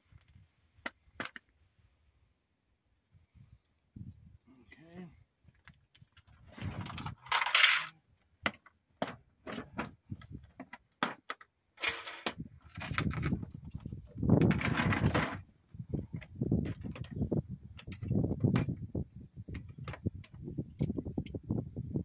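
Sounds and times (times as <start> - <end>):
hand tools clinking: 7.2 - 8.0.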